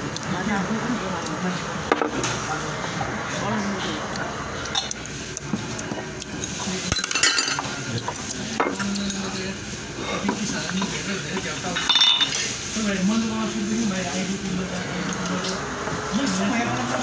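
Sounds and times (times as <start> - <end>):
chopsticks clicking against bowls: 4.1 - 9.3
dishes clinking: 6.8 - 9.4, 10.1 - 12.5.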